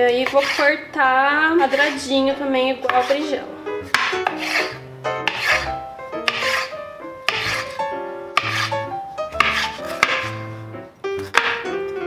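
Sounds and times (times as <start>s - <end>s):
knife slicing pepper on board: 0.2s - 0.7s, 1.7s - 2.0s, 2.9s - 3.2s, 3.9s - 5.7s, 6.3s - 6.7s, 7.3s - 7.8s, 8.4s - 8.8s, 9.4s - 10.4s, 11.2s - 11.7s
background music: 1.6s - 12.0s
knife tapping cutting board: 3.9s - 5.7s, 6.3s - 6.7s, 7.3s - 7.8s, 8.4s - 8.7s, 9.4s - 10.4s, 11.2s - 11.7s.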